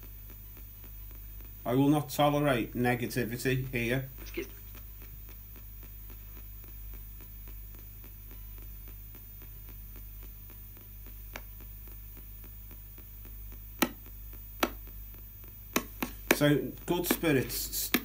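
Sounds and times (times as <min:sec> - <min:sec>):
radio static sweeping stations: 0:01.1 - 0:14.4.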